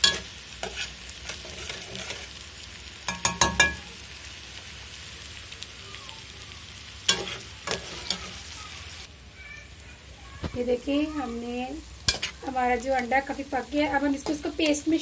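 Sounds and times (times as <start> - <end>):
eggs sizzling in oil: 0.0 - 15.0
metal spoon scraping pot: 12.1 - 12.5.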